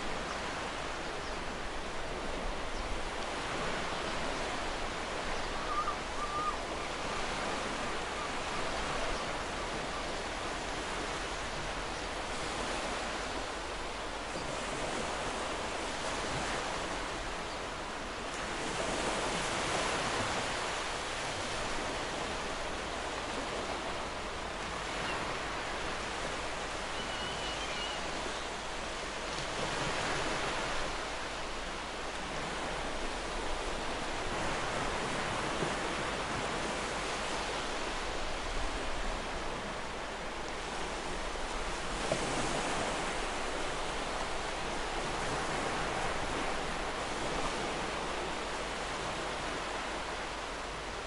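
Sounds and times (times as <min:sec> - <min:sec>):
ocean waves breaking on shore: 0:00.0 - 0:51.0
faint bird calls: 0:05.3 - 0:07.0, 0:26.8 - 0:28.5.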